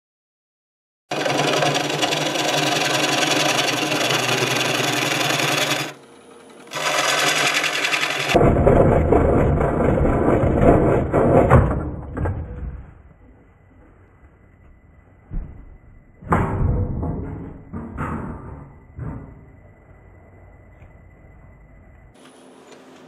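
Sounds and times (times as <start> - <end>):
lathe tool scraping wood bowl: 1.1 - 8.4.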